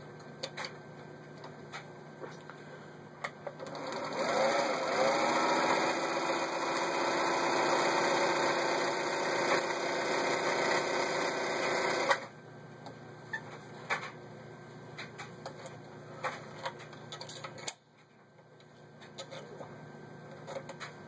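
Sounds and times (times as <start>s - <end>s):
sewing machine stitching: 3.6s - 12.3s.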